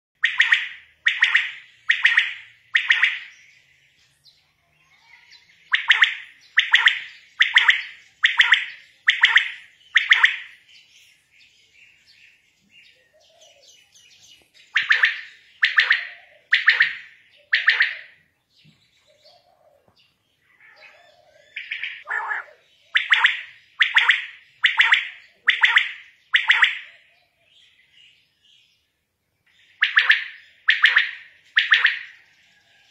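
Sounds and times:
quail calling: 0:00.2 - 0:03.3, 0:14.8 - 0:18.2, 0:20.5 - 0:27.0, 0:29.8 - 0:32.2.

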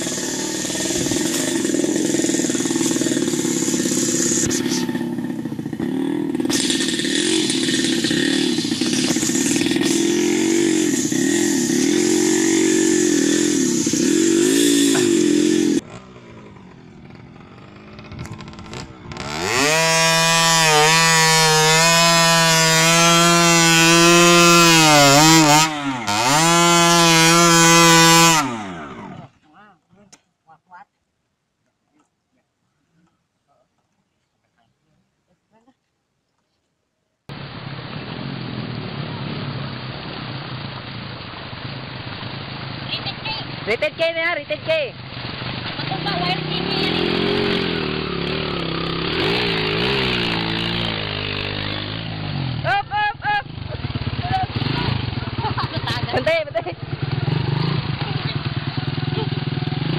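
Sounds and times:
chainsaw cutting through logs: 0:00.0 - 0:29.4, 0:46.0 - 0:52.6
small motorcycle engine revving: 0:00.0 - 0:29.4, 0:45.1 - 0:52.7, 0:53.5 - 0:59.9.

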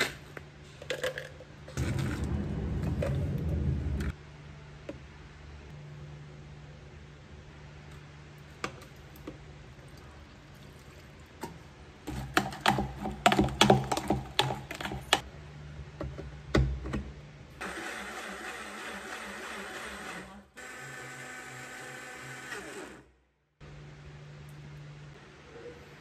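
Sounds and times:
blender motor running: 0:17.6 - 0:23.1.

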